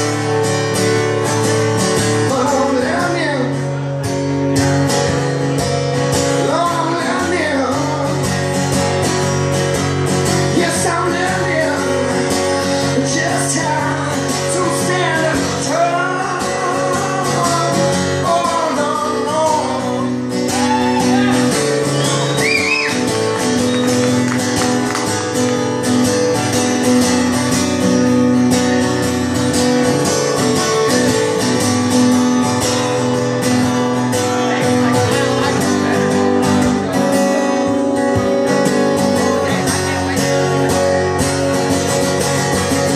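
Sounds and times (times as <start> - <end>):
acoustic guitar playing: 0.0 - 42.9
man singing: 1.9 - 4.0, 6.1 - 9.2, 10.3 - 21.9.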